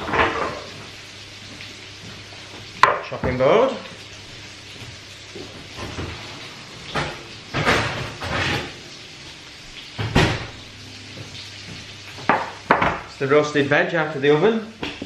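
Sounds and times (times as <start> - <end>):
tray scraping clatters: 7.0 - 8.8
oven door shutting thump: 10.0 - 10.6.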